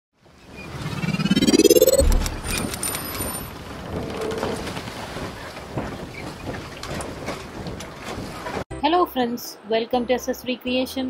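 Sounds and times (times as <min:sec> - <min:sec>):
low boom: 0:01.2 - 0:02.8.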